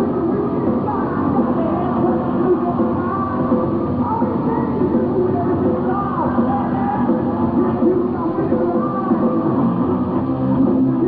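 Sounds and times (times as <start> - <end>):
bass guitar: 0.0 - 11.0
drums: 0.0 - 11.0
electric guitars: 0.0 - 11.0.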